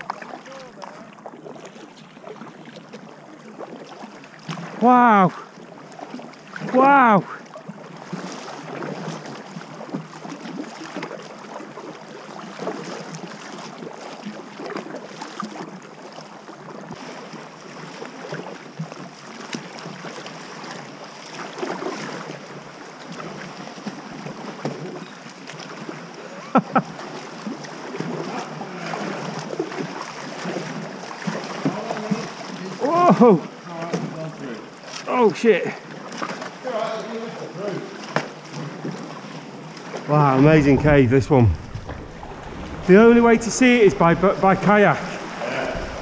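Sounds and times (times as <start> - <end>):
paddle blades dipping: 0.0 - 20.0, 35.8 - 46.0
water splashing around kayak: 0.0 - 46.0.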